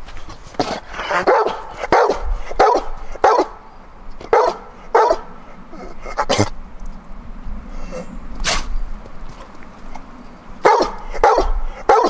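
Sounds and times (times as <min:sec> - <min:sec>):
dog barking: 0:01.1 - 0:03.6, 0:04.2 - 0:05.4, 0:10.6 - 0:12.0.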